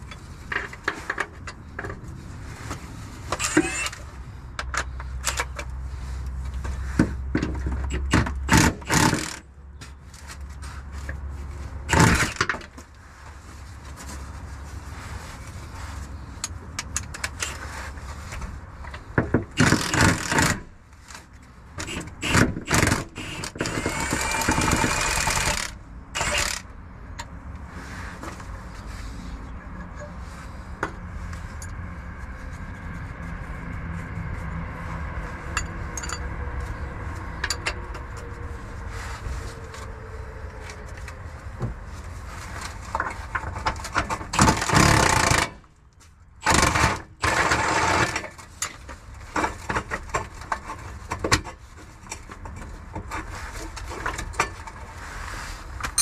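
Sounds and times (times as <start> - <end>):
metal clanks and scraping: 0.0 - 5.8, 35.5 - 36.7
power ratchet bursts: 3.4 - 4.0, 7.9 - 9.4, 11.9 - 12.4, 19.6 - 20.6, 21.9 - 26.6, 44.4 - 45.6, 46.4 - 48.2
steady low rumble: 25.8 - 43.8.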